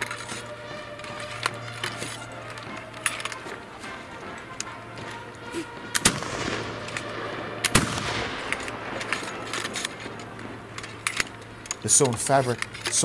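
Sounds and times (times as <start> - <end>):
rifle shots echoing: 0.0 - 12.8.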